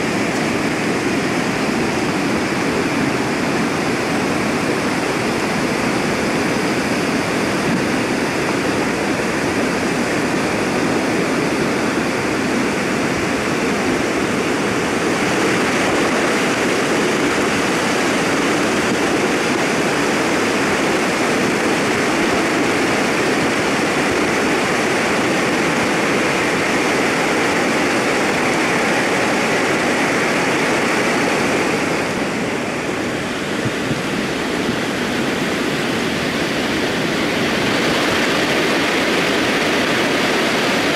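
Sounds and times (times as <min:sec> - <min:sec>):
mudflow torrent rushing: 0:00.0 - 0:40.9.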